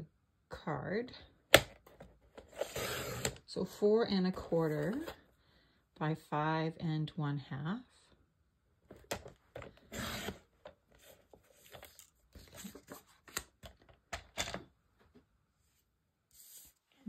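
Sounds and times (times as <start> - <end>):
paper trimmer cutting paper: 2.6 - 3.4, 9.9 - 10.4.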